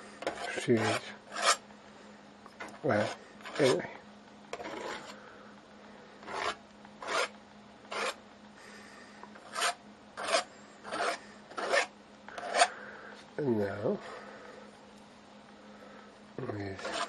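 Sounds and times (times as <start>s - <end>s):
paintbrush scratching on canvas: 0.3s - 1.6s, 3.0s - 3.8s, 4.6s - 5.1s, 6.2s - 7.3s, 7.9s - 8.2s, 9.5s - 12.7s, 16.8s - 17.0s.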